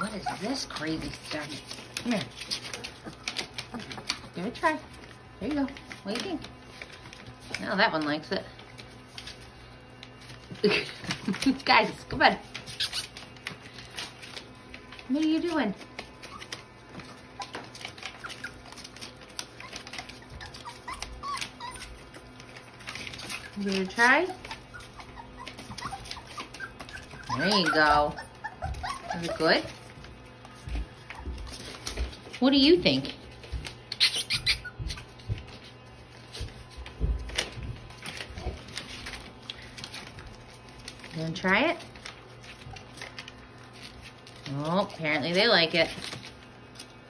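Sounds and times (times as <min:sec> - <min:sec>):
puppies squeaking and whimpering: 0:00.0 - 0:06.0, 0:10.5 - 0:14.5, 0:15.9 - 0:32.2, 0:33.9 - 0:35.6.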